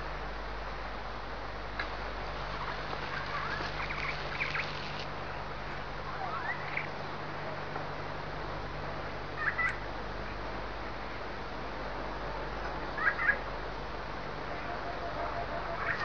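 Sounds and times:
steady background hiss: 0:00.0 - 0:16.0
short chirping animal calls: 0:14.6 - 0:16.0.

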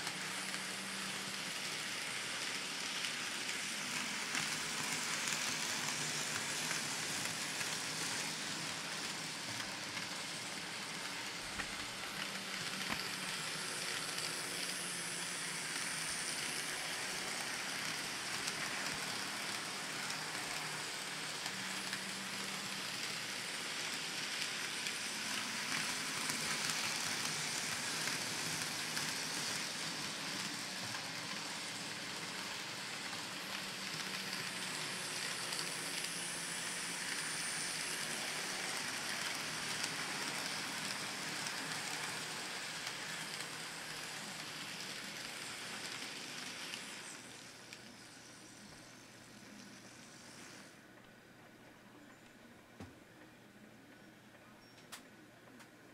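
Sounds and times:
faint motor hum: 0:00.0 - 0:55.9.

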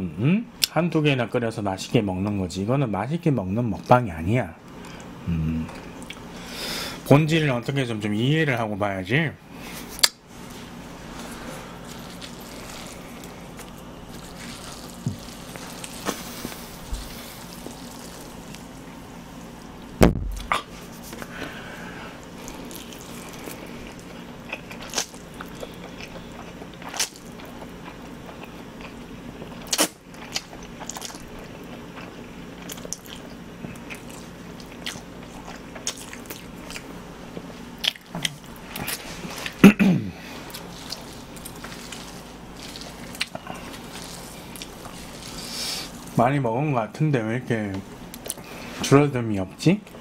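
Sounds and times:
steady low hum: 0:00.0 - 0:50.0
close chewing of noodles: 0:10.7 - 0:18.9, 0:22.1 - 0:39.6, 0:40.2 - 0:46.2.

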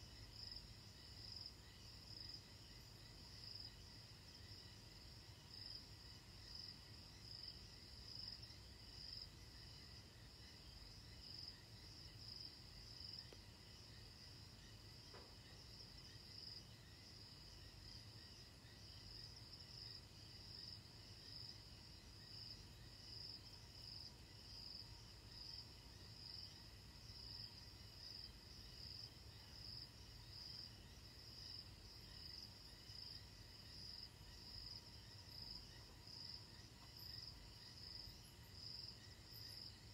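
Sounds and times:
night insects trilling: 0:00.0 - 0:39.9.

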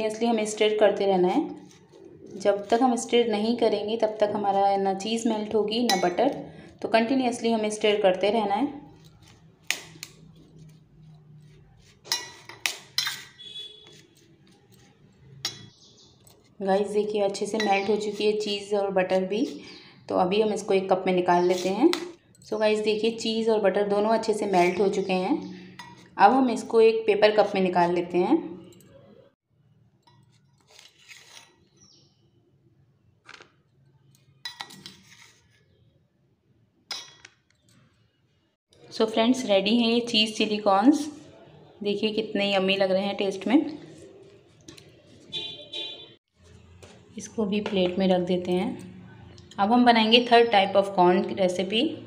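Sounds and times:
metal spoon scraping steel bowl: 0:01.5 - 0:06.7, 0:08.8 - 0:19.8, 0:21.4 - 0:23.3, 0:24.0 - 0:26.7, 0:30.0 - 0:31.7, 0:34.4 - 0:35.8
spoon clinking in steel bowl: 0:05.8 - 0:06.4, 0:12.1 - 0:14.0, 0:15.4 - 0:15.8, 0:17.5 - 0:18.7, 0:34.4 - 0:35.0, 0:36.9 - 0:37.3.

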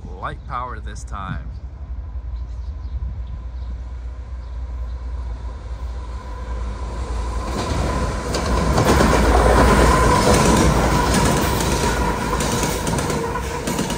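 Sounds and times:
locomotives rumbling past: 0:03.4 - 0:13.9
wheels clicking over rail joints: 0:07.5 - 0:13.9.

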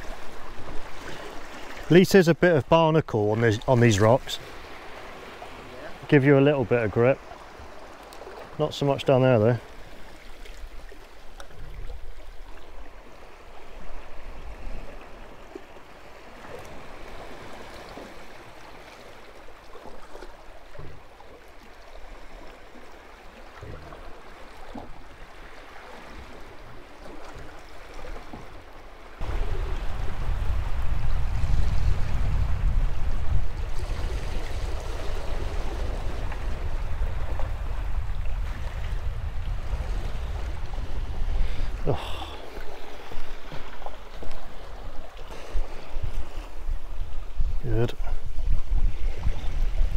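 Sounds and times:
sea water washing against rocks: 0:29.2 - 0:49.9
wind rumbling on microphone: 0:29.2 - 0:49.9.

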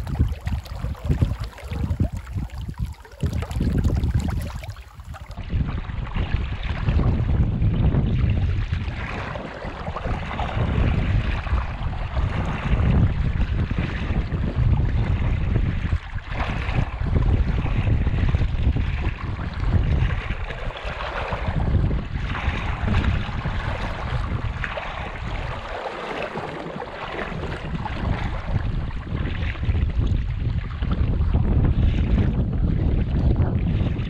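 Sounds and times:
flowing creek water: 0:00.0 - 0:07.3, 0:07.9 - 0:30.9
wind buffeting microphone: 0:00.0 - 0:34.0.

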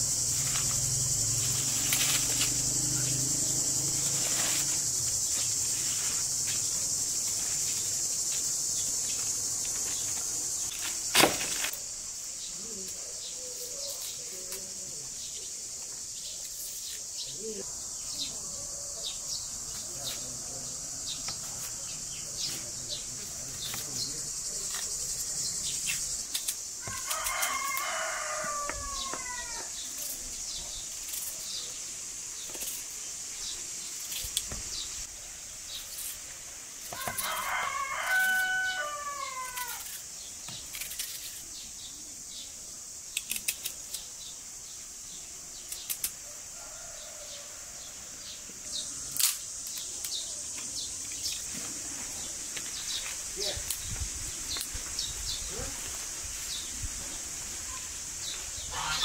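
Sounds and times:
insects droning: 0:00.0 - 0:59.0
rooster crowing: 0:26.8 - 0:29.8, 0:36.9 - 0:39.9, 0:46.3 - 0:48.2.

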